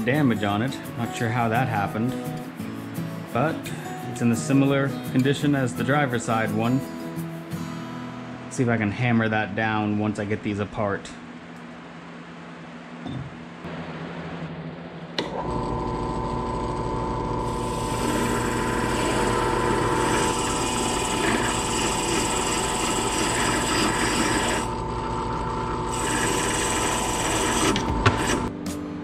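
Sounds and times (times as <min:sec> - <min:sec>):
bench grinder motor humming: 0:15.3 - 0:28.5
metal scraping on grinding wheel: 0:17.4 - 0:24.7, 0:25.9 - 0:28.5.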